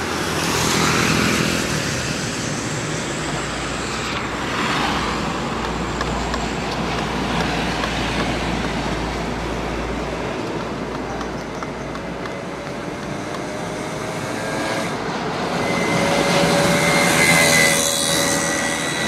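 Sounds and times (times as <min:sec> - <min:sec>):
road traffic passing: 0:00.0 - 0:19.0.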